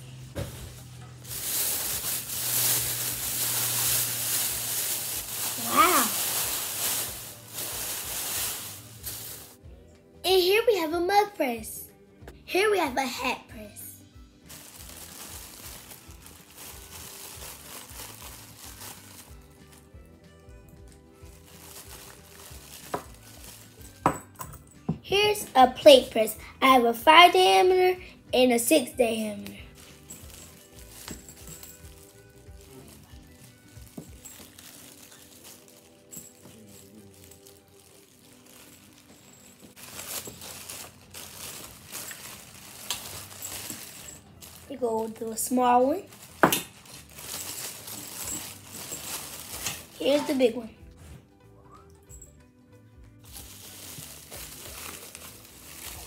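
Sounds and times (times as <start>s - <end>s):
plastic bag crinkling: 0.4s - 9.6s, 14.5s - 19.8s, 21.2s - 24.0s, 29.6s - 50.5s, 53.2s - 56.0s.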